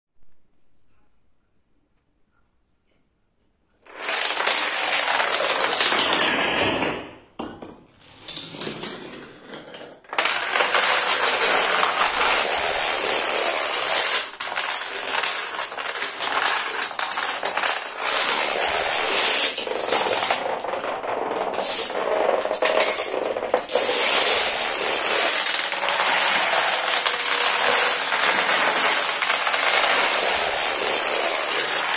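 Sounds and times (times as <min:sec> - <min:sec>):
plastic dominoes toppling: 0:03.9 - 0:07.2, 0:08.3 - 0:31.9.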